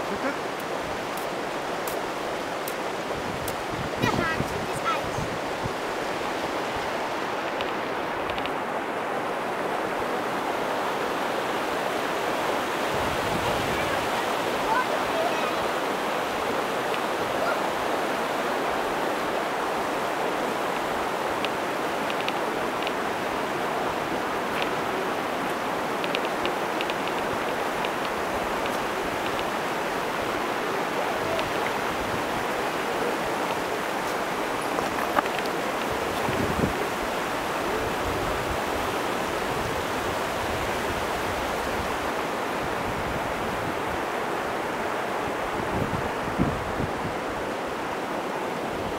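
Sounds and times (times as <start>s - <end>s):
stream rushing over stones: 0.0s - 48.9s
faint clicks: 7.4s - 8.6s, 21.4s - 23.0s, 24.5s - 24.8s, 25.5s - 29.5s, 33.4s - 36.4s.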